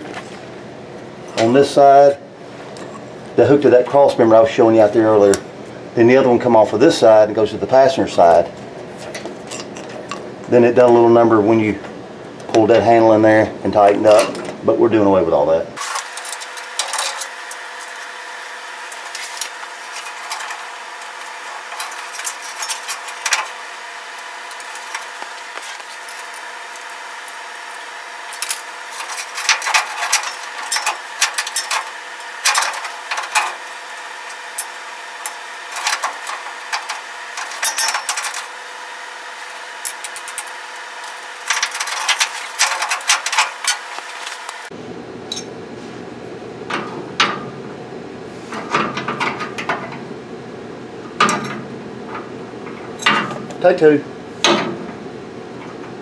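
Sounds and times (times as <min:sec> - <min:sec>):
steady hum: 0:00.0 - 0:56.0
metallic clinks and rattles of cable: 0:18.9 - 0:23.6, 0:28.3 - 0:38.6, 0:39.8 - 0:44.3.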